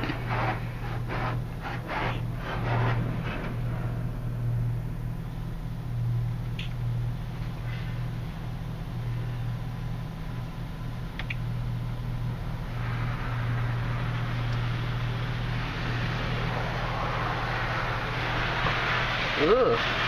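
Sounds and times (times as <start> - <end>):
water and foam spraying on windshield: 0.0 - 3.6, 12.7 - 20.0
steady low hum: 0.0 - 20.0
click: 11.2 - 11.4.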